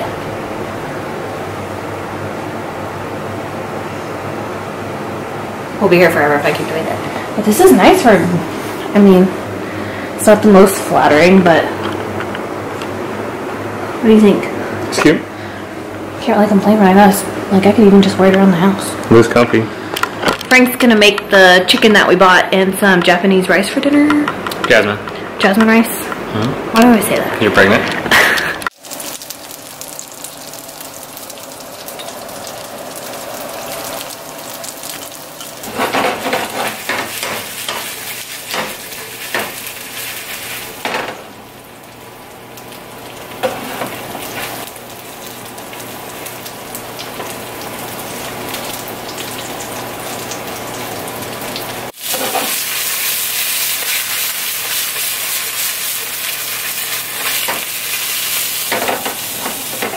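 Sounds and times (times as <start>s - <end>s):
chicken sizzling in a frying pan: 28.2s - 59.9s
wooden spoon scraping a pan: 35.6s - 40.8s, 52.0s - 55.6s.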